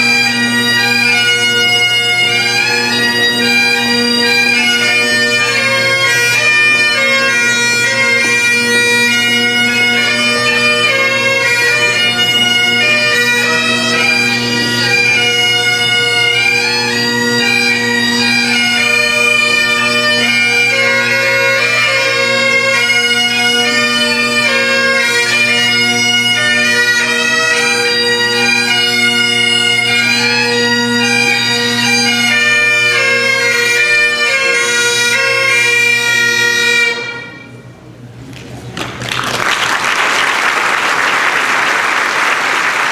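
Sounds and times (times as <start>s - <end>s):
bagpipes playing: 0.0s - 37.7s.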